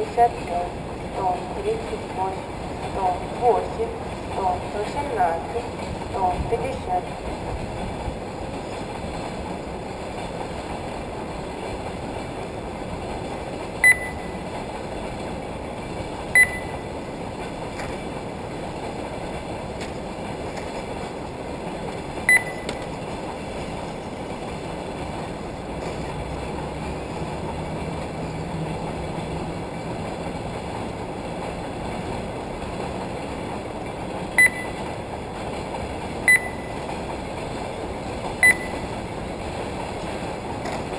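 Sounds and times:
short high electronic beeps: 13.8s - 14.4s, 16.4s - 16.8s, 22.3s - 22.7s, 34.4s - 34.8s, 36.3s - 36.8s, 38.4s - 38.9s.

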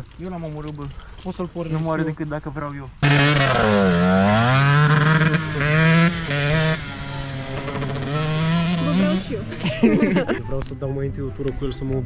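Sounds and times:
dirt bike engine revving: 3.0s - 10.2s.

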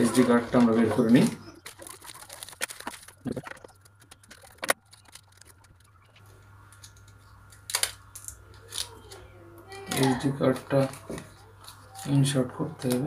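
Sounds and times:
plastic blister pack crackling: 0.1s - 13.0s.

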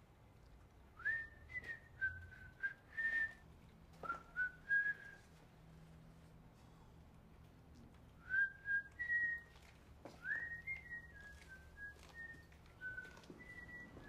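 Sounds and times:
person whistling a tune: 1.0s - 3.4s, 4.0s - 5.2s, 8.2s - 9.5s, 10.2s - 14.0s.

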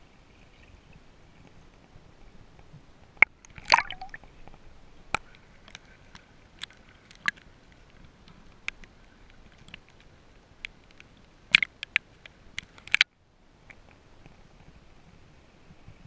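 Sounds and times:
water drips and small splashes: 2.6s - 14.8s
camera breaking water surface: 3.6s - 4.2s.

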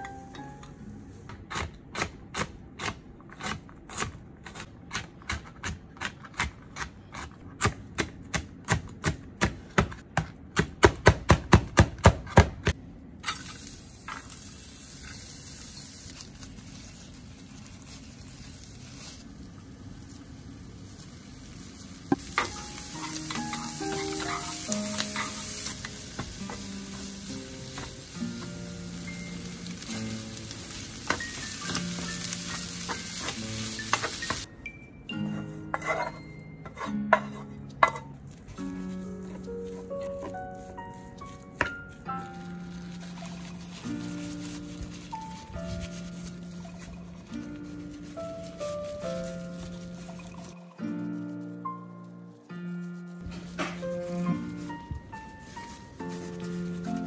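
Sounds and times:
soft piano music: 0.0s - 1.3s, 21.5s - 57.0s
food sizzling in frying pan: 13.3s - 34.5s, 42.3s - 50.8s.

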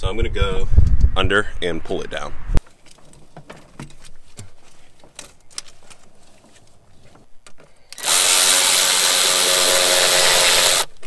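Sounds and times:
clicks and knocks of handling: 2.6s - 8.0s
handheld power tool running: 8.0s - 10.9s.

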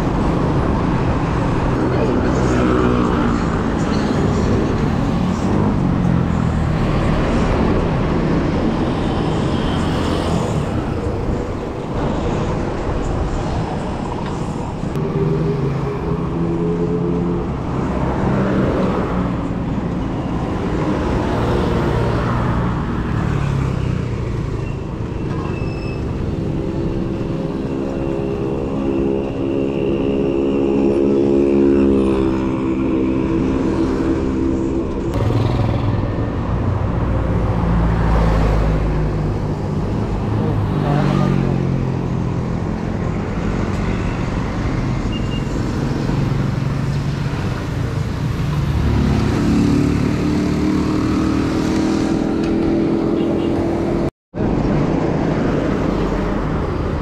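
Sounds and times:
car engines passing: 0.0s - 57.0s
steady road noise: 0.0s - 57.0s
motorcycle engines passing: 26.0s - 54.1s.

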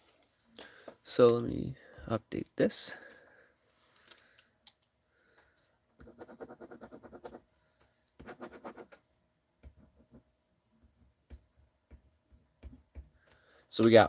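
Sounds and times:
pen scratching on paper: 6.0s - 7.4s, 8.2s - 9.0s.

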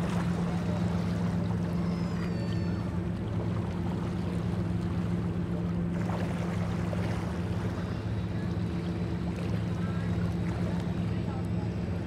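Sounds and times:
ferry engine droning: 0.0s - 12.0s.

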